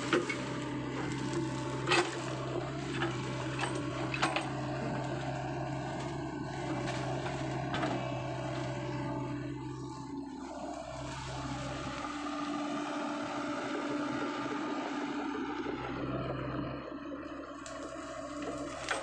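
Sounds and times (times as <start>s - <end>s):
wood cracking: 0.0s - 9.4s
excavator diesel engine running: 0.0s - 19.0s.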